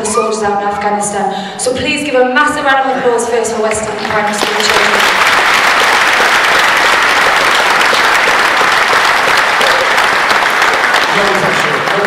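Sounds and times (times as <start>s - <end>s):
audience applauding: 4.0s - 12.0s.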